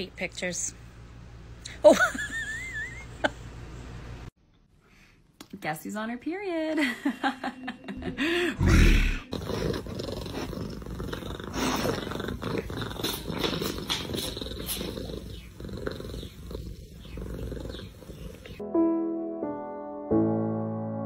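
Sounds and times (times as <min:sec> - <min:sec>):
cat purring: 0:09.3 - 0:18.6.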